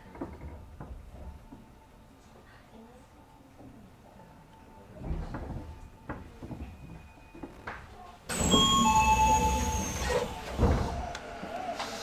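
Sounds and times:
knocks and footsteps: 0.0s - 1.8s, 5.0s - 8.2s
ringing chime tones: 8.3s - 10.2s.

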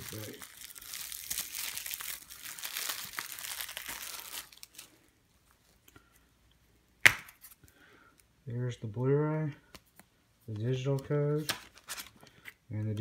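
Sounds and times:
plastic shrink-wrap crinkling: 0.0s - 5.1s.

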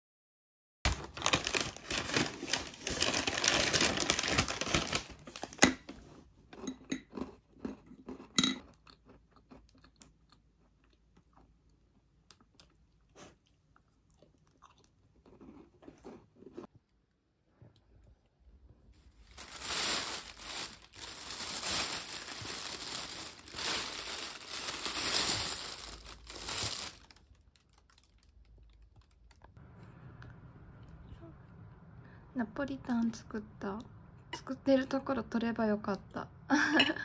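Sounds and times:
crackling and rustling: 0.9s - 6.2s, 19.0s - 29.6s
cookies crunching: 6.6s - 17.2s, 19.0s - 29.6s.

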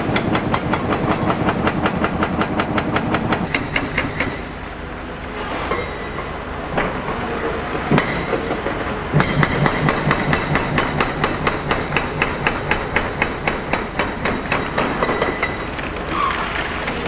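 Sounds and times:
hammer striking steel: 0.0s - 4.6s, 7.9s - 15.7s.

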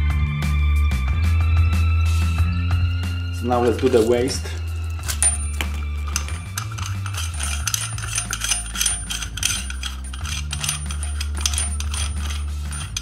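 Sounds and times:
small metal parts clinking: 4.0s - 13.0s.

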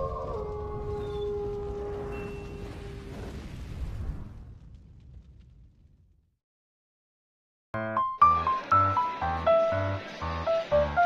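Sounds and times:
wolf howl: 0.0s - 3.1s.

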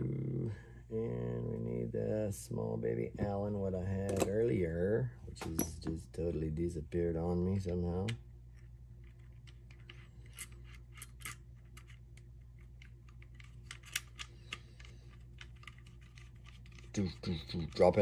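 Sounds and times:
steady low hum: 0.0s - 18.0s
small parts clicking and tapping: 7.6s - 18.0s.

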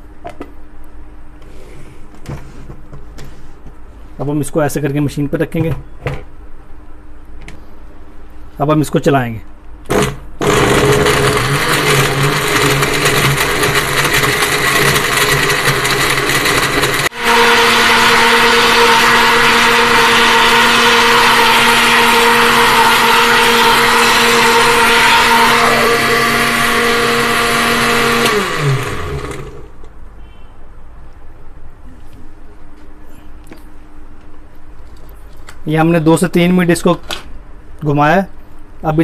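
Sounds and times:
electric blender running: 9.9s - 29.7s.

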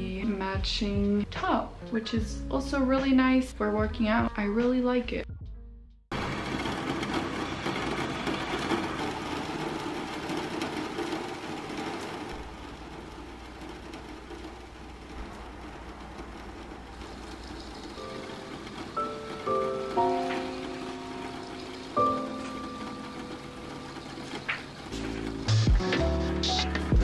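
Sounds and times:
steady rain hiss: 6.4s - 26.5s.

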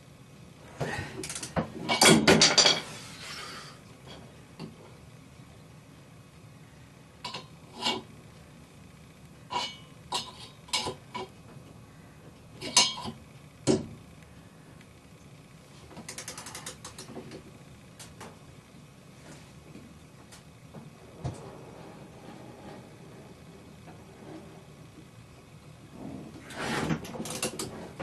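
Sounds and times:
ratchet wrench clicking: 16.1s - 17.0s.

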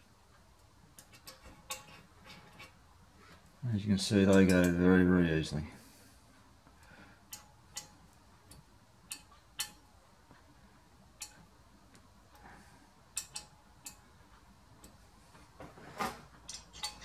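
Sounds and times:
allen key metallic ticks: 13.2s - 14.0s.

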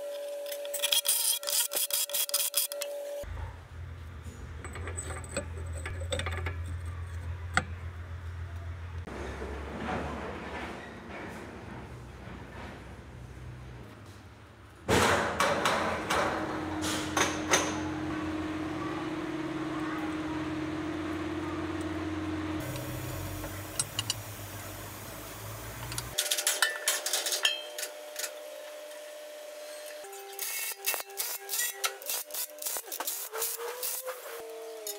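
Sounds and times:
metal knocks and clanks: 14.9s - 18.1s
steady hum: 16.1s - 26.2s.

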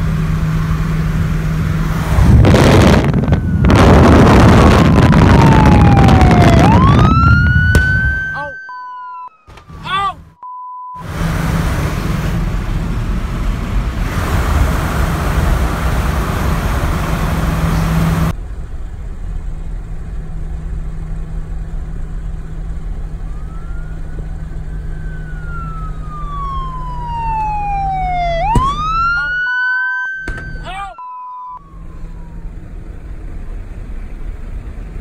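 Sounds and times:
road and wind noise in car: 0.0s - 35.0s
emergency vehicle siren wailing: 0.2s - 10.4s, 22.6s - 33.6s.

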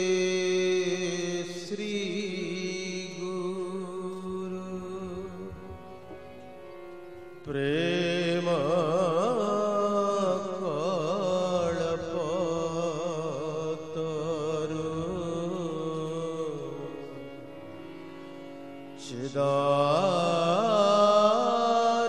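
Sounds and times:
drone-like accompaniment: 0.0s - 22.0s.

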